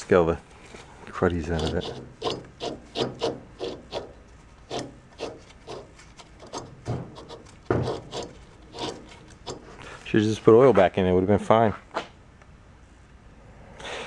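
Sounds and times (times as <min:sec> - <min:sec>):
gritty bearing scraping: 0:00.0 - 0:11.2.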